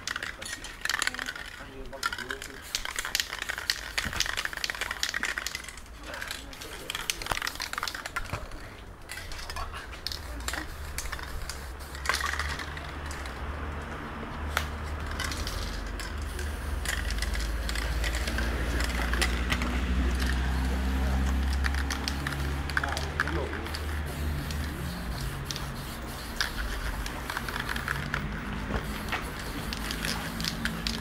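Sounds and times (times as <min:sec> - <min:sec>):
cans and tools clicking on wood: 0:00.0 - 0:13.8, 0:21.2 - 0:31.0
spray-paint can hissing: 0:00.1 - 0:13.3, 0:14.4 - 0:31.0.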